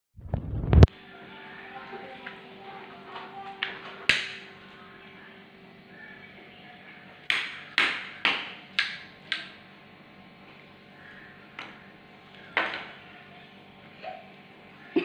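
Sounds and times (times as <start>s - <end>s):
hand slapping tiled floor: 3.6s - 4.5s, 7.3s - 9.6s.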